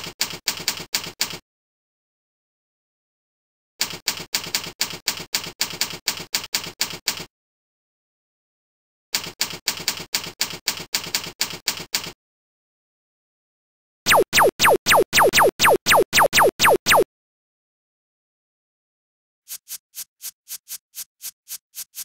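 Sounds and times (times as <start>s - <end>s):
electronic zaps falling in pitch: 14.1s - 17.0s.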